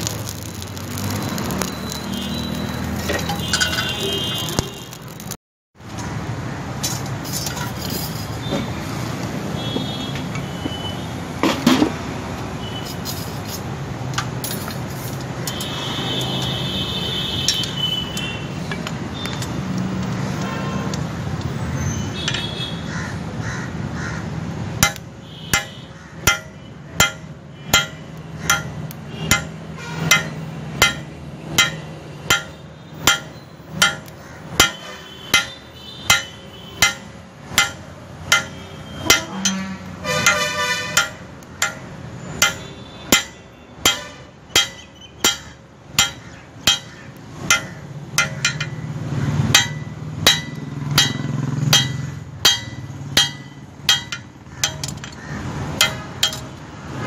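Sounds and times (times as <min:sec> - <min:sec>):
hammer striking steel on anvil: 0:24.8 - 0:56.6.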